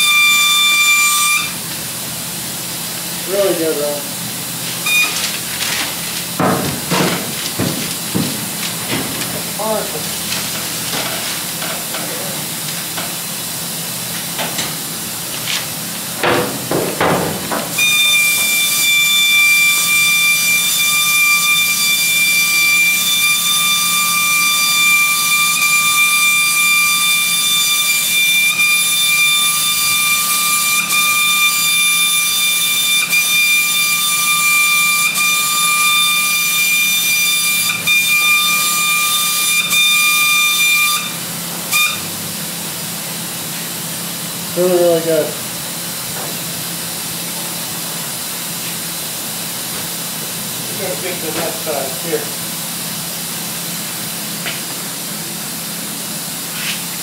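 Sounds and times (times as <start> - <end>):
paint sprayer hissing and whistling: 0.0 - 2.0, 2.7 - 6.4, 17.7 - 42.3, 56.5 - 57.0.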